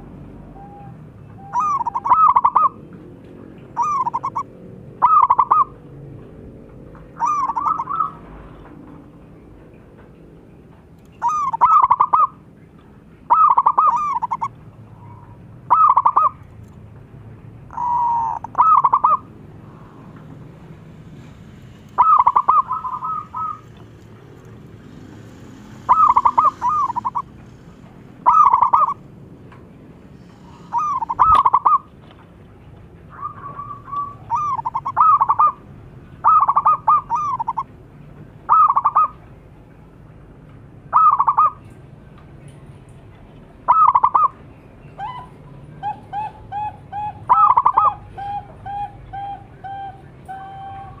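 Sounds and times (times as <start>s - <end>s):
dove cooing: 0.0s - 3.0s, 3.7s - 5.9s, 7.1s - 8.4s, 11.2s - 12.4s, 13.3s - 16.4s, 17.7s - 19.3s, 22.0s - 23.8s, 25.8s - 27.6s, 28.2s - 29.0s, 30.3s - 31.9s, 33.1s - 37.7s, 38.5s - 39.2s, 40.9s - 41.6s, 43.7s - 44.4s, 45.0s - 51.0s.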